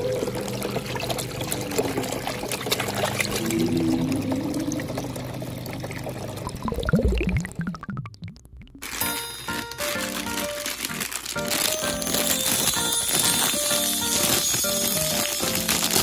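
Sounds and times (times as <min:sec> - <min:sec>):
water pouring into basin: 0:00.0 - 0:09.0
swooping effect: 0:03.2 - 0:05.9.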